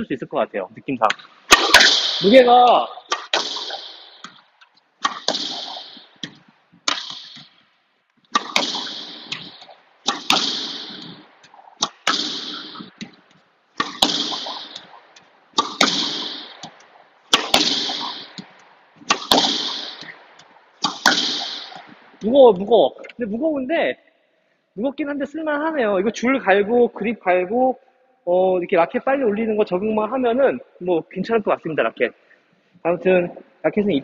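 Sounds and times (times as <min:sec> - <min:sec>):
racket hitting squash ball: 0:01.2 - 0:07.7, 0:08.3 - 0:23.2
ball hitting front wall: 0:01.5 - 0:04.4, 0:05.0 - 0:07.6, 0:08.3 - 0:15.0, 0:15.6 - 0:20.2, 0:20.8 - 0:22.7.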